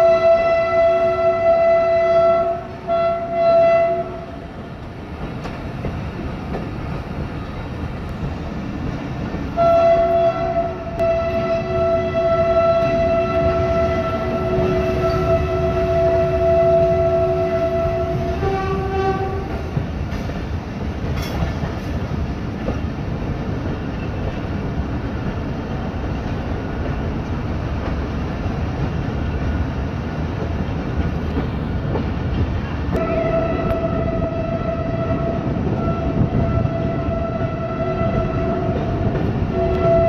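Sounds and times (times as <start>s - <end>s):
locomotive horn: 0.0s - 4.4s, 9.6s - 19.7s, 32.9s - 40.0s
train rumbling on track: 0.0s - 40.0s.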